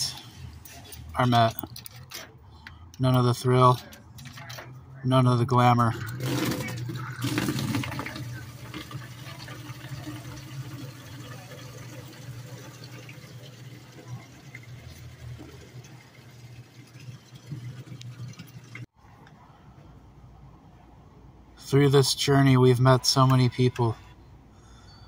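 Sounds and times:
water pouring into plastic jug: 6.1s - 18.9s.

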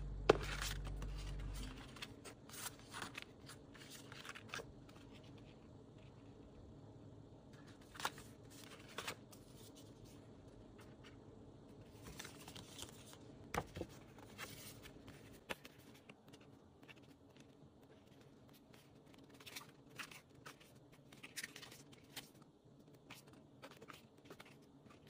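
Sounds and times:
book pages leafed: 0.3s - 5.5s, 7.6s - 10.1s, 11.9s - 22.4s
paper rustling: 0.3s - 6.2s, 7.6s - 11.2s, 11.8s - 25.0s.

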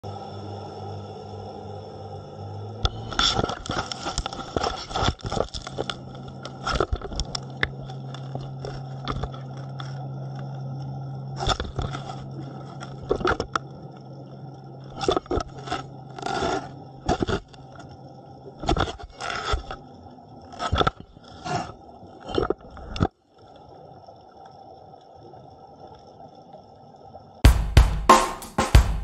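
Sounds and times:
steady low hum: 0.0s - 4.7s, 5.5s - 14.9s.

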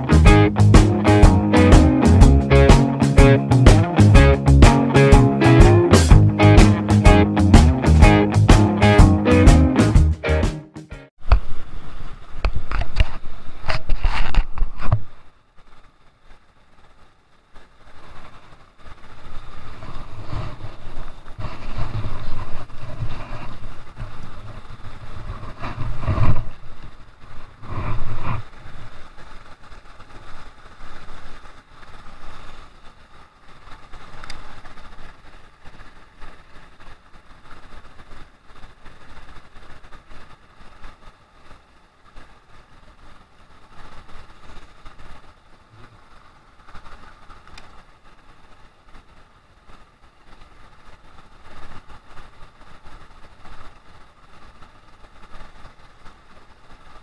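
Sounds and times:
camera handling rustle: 12.6s - 15.1s.

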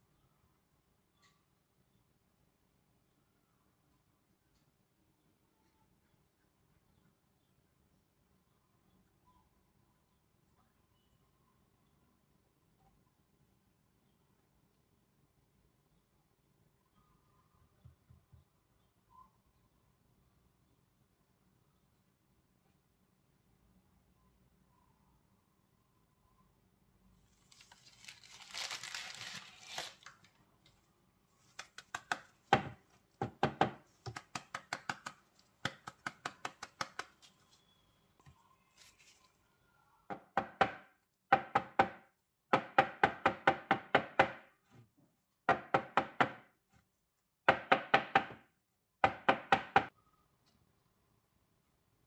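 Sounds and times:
plastic rustle: 27.3s - 33.2s, 38.6s - 39.5s.

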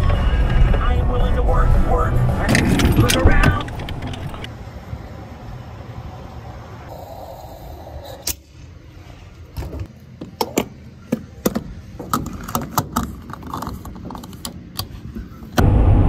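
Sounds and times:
car road noise rumble: 0.0s - 6.8s, 15.6s - 16.0s.

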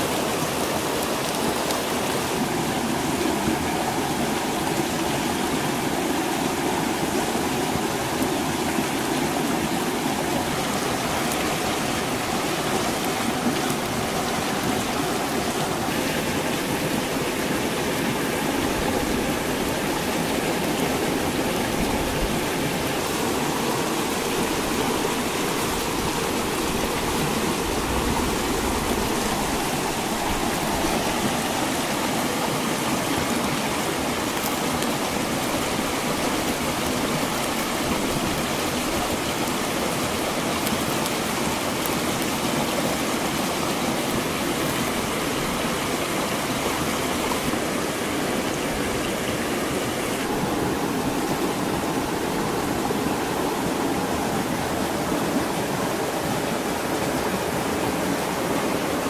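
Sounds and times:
stream rushing over stones: 0.0s - 59.0s.

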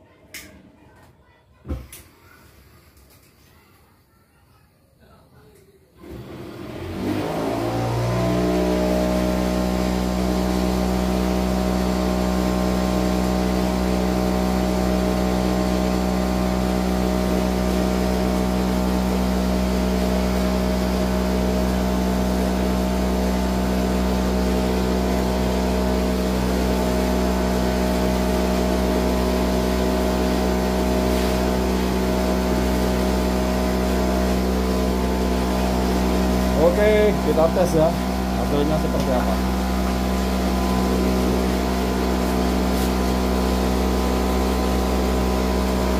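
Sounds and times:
cotton candy machine motor whine: 6.0s - 45.9s.

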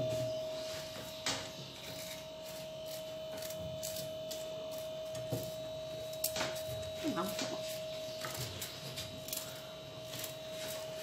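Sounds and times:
steady hum: 0.0s - 11.0s
knife scraping squash: 1.8s - 5.5s.

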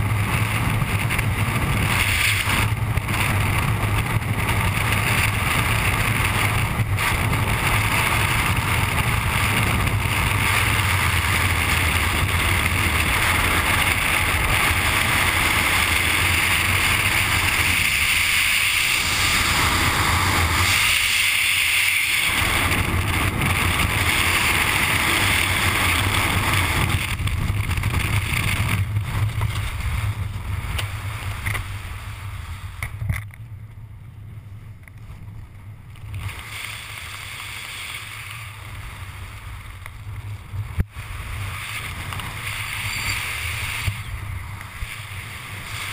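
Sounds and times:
airstream rushing over microphone: 0.0s - 33.3s.

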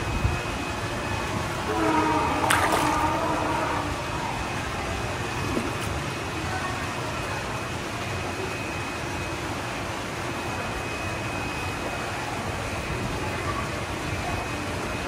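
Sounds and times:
pitched hooting tone: 0.0s - 5.8s.

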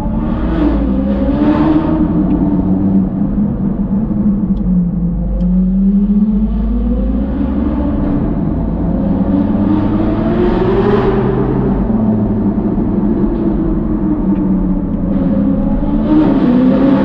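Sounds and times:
car engine accelerating in tunnel: 0.0s - 17.0s.

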